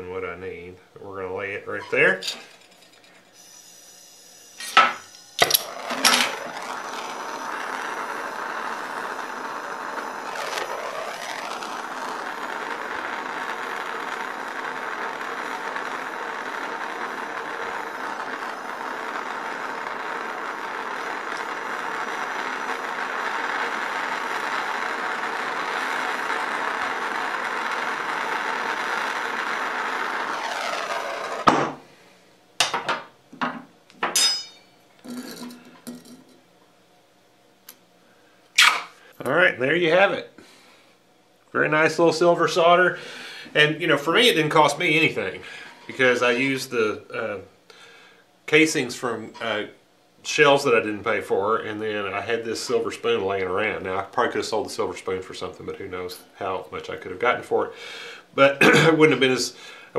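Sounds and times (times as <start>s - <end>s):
torch flame hissing: 1.4s - 32.7s, 41.7s - 59.9s
torch igniter clicks: 4.6s - 31.7s.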